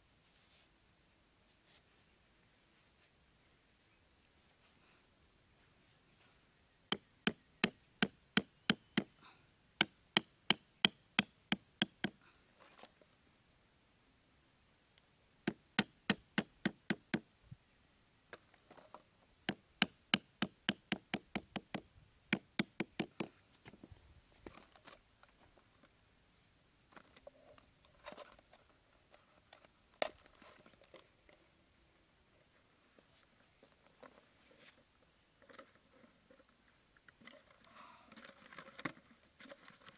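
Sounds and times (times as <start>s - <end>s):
hatchet hammering wooden stakes: 6.9s - 9.2s, 9.8s - 12.2s, 15.5s - 17.3s, 19.5s - 23.3s.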